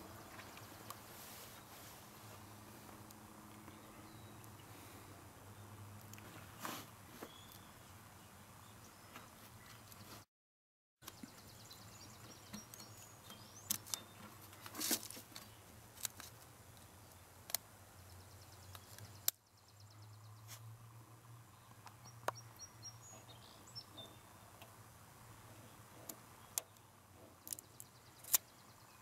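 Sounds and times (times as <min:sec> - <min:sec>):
faint bird chirps: 0:07.2 - 0:10.2
sharp clicks and handling noises: 0:12.5 - 0:17.7, 0:26.0 - 0:28.5.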